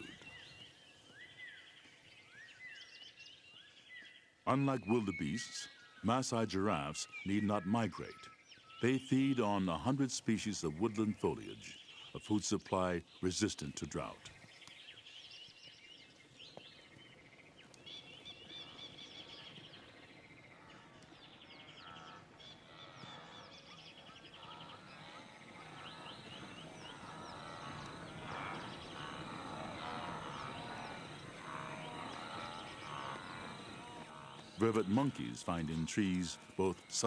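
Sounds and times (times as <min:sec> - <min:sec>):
birds chirping and trilling: 0:00.0 - 0:37.0
low bird calls: 0:00.0 - 0:37.0.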